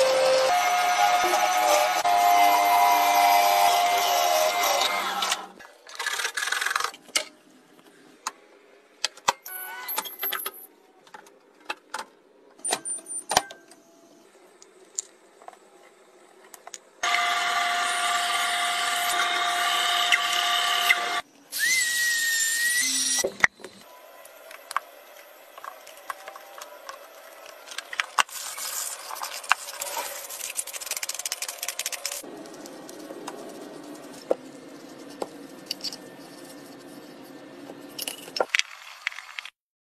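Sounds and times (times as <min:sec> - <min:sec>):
scroll saw cutting wood: 0:00.0 - 0:07.0, 0:17.0 - 0:23.2.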